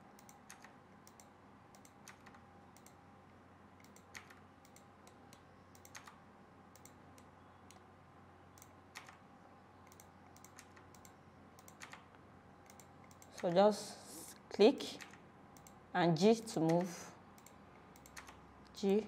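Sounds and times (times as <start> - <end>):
low steady hum: 0.0 - 19.0
computer keyboard and mouse clicks: 0.2 - 3.0, 3.8 - 7.8, 8.6 - 9.2, 9.8 - 13.6, 15.0 - 15.8, 16.6 - 19.0.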